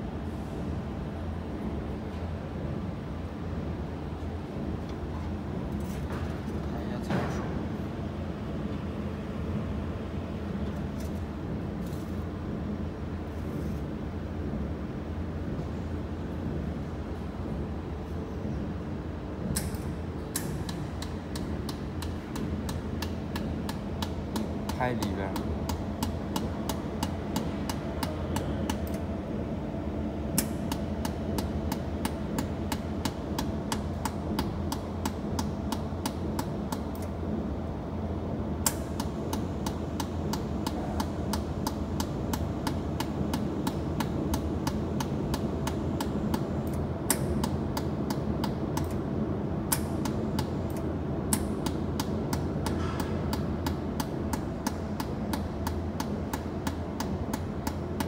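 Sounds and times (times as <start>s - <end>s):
laser welder sharp clicks: 19.5s - 25.1s, 38.6s - 49.0s.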